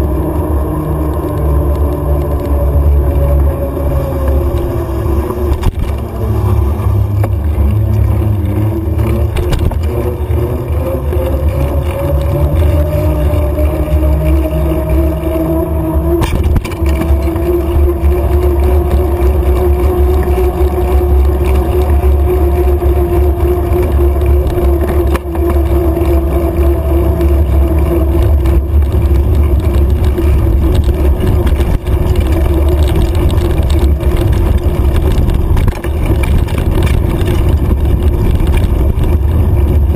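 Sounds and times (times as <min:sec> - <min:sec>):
steady hum rising in pitch: 0:00.0 - 0:39.9
wind buffeting microphone: 0:00.0 - 0:39.9.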